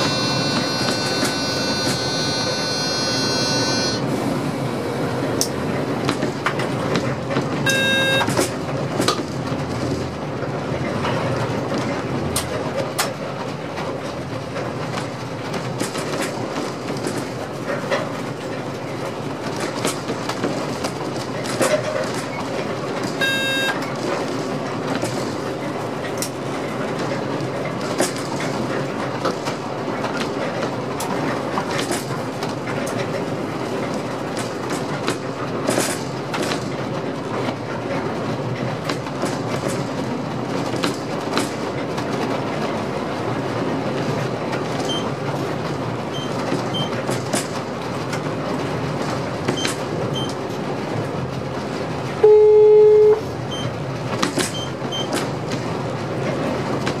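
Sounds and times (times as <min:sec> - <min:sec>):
electronic beep: 0:00.0 - 0:04.0, 0:07.7 - 0:08.3, 0:23.2 - 0:23.8, 0:52.2 - 0:53.7
train wheels rumbling on rail: 0:00.0 - 0:52.3, 0:53.2 - 0:57.0.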